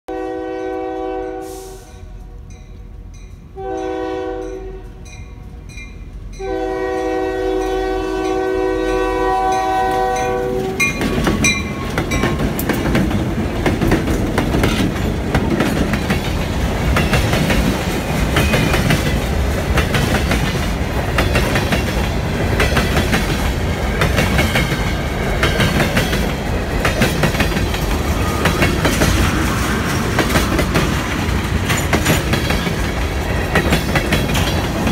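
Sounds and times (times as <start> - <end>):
locomotive air horn: 0.1 - 2.3, 3.6 - 5.1, 6.4 - 10.9
train rumbling past: 0.1 - 34.9
wheels clacking over rail joints: 10.2 - 34.9.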